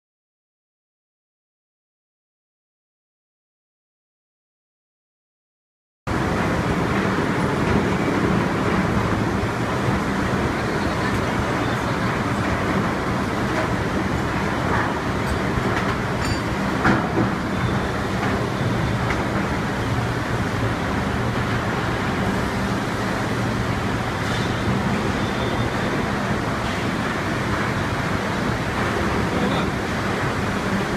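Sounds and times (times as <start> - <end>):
conveyor rumble and hum: 6.1 - 30.9.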